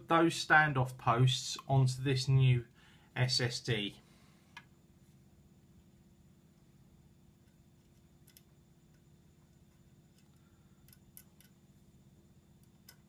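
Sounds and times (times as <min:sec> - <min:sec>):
low room hum: 0:00.0 - 0:13.0
small parts clicking: 0:10.1 - 0:11.6.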